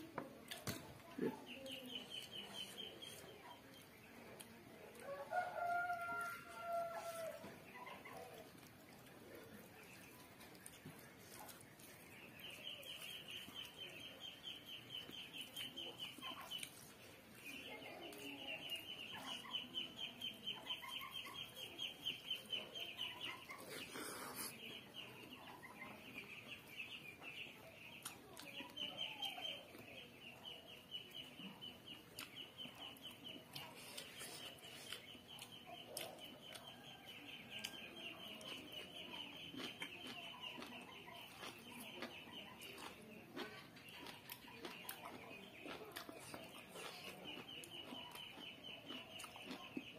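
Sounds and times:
person chewing food: 0:00.2 - 0:19.4, 0:23.2 - 0:25.9, 0:31.8 - 0:49.9.

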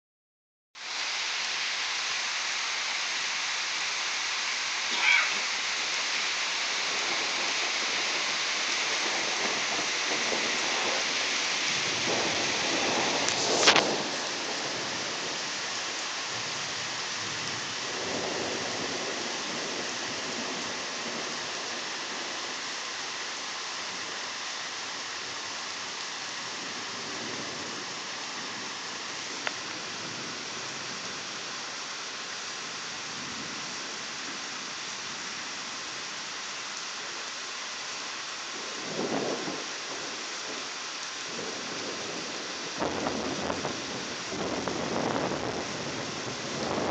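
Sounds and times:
steady rain: 0:00.8 - 0:46.9
thunder rumbling: 0:06.7 - 0:15.7, 0:38.8 - 0:40.2, 0:41.3 - 0:46.9
sharp thunderclap: 0:06.9 - 0:15.4, 0:38.8 - 0:39.7, 0:41.3 - 0:46.9.

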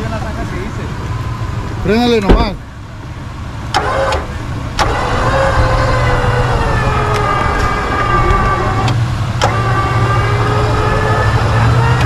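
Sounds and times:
motor whining under load: 0:03.7 - 0:12.0.

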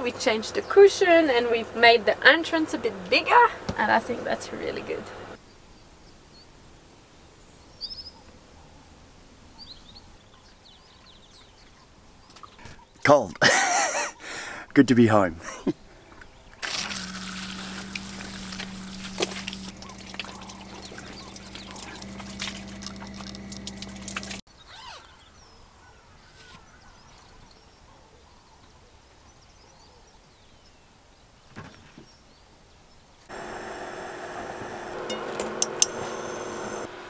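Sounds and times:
motor hum: 0:16.6 - 0:24.4, 0:33.3 - 0:37.0
shower spraying water: 0:16.6 - 0:24.4
faint chirps: 0:17.5 - 0:24.8.

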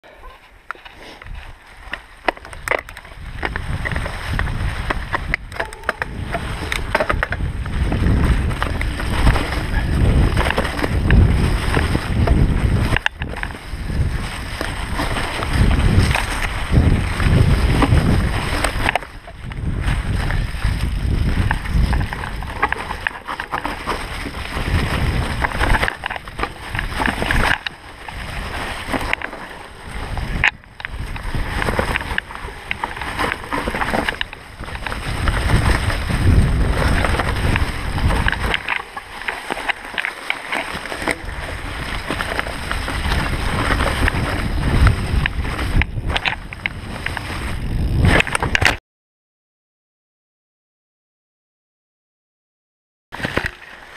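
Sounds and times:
bike knocking and rattling: 0:00.0 - 0:48.8, 0:53.2 - 0:53.9
tyres rolling through dry leaves: 0:00.2 - 0:48.6
wind over microphone: 0:01.0 - 0:48.8.

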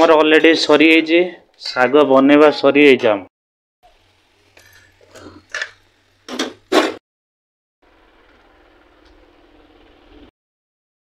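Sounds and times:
outdoor background hum: 0:03.8 - 0:06.9, 0:07.8 - 0:10.3.

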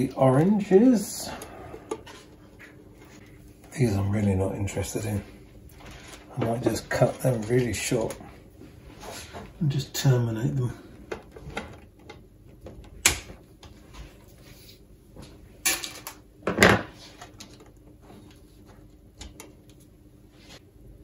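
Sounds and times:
wire rustling: 0:05.7 - 0:09.3.

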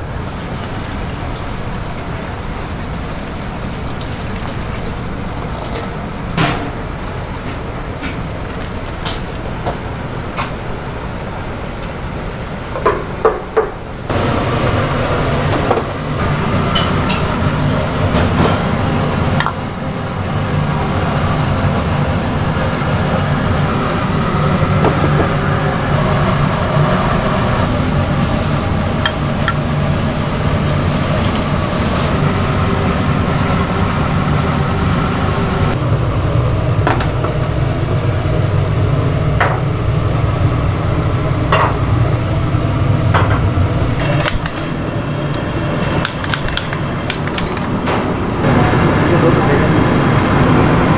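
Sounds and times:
gas burners and ventilation roar: 0:00.0 - 0:50.9
bowls and ladle clinking: 0:16.8 - 0:17.4.

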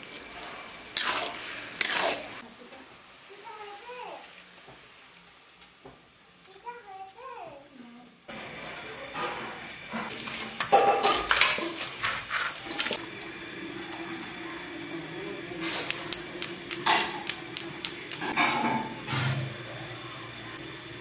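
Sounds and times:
metal utensils clinking on pots: 0:09.2 - 0:13.0, 0:15.6 - 0:19.4.

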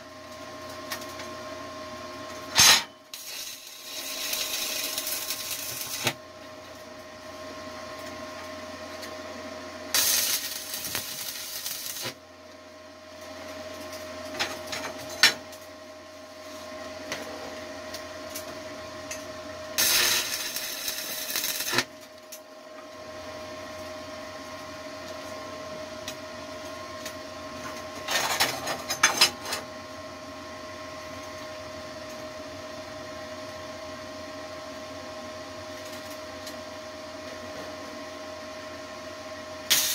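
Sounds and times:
steady hum: 0:00.0 - 0:27.8
welding arc crackling hiss: 0:02.5 - 0:06.2, 0:09.9 - 0:12.2, 0:19.8 - 0:21.9, 0:39.7 - 0:39.9.

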